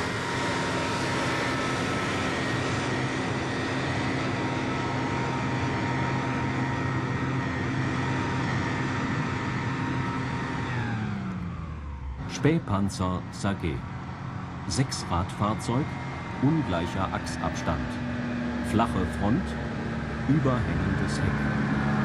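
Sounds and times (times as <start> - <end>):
armoured car driving: 0.0 - 22.0.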